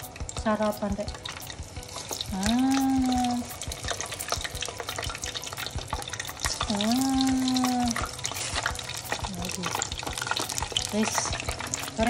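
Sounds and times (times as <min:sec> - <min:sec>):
deep-frying oil crackling: 0:00.0 - 0:12.0.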